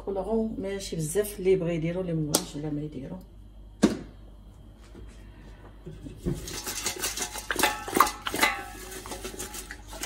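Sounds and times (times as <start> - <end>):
metal pot clattering: 6.1 - 10.0.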